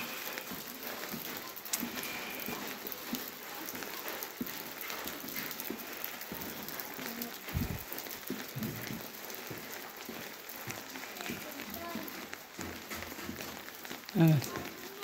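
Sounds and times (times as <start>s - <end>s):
rain on wet pavement: 0.0s - 15.0s
low thumps: 7.6s - 7.8s.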